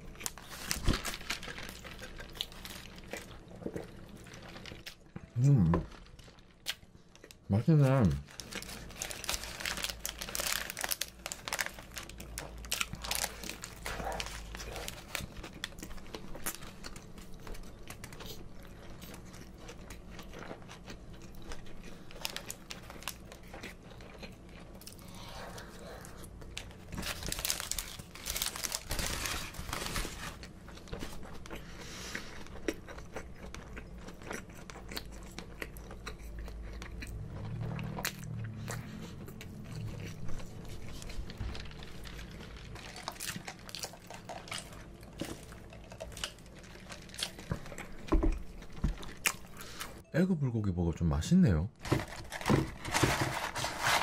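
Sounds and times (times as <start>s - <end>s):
paper wrapper crinkling: 0.0s - 7.3s, 8.1s - 18.2s, 26.6s - 31.2s, 40.3s - 50.0s, 51.8s - 54.0s
person chewing and biting: 8.3s - 29.4s, 30.4s - 50.0s.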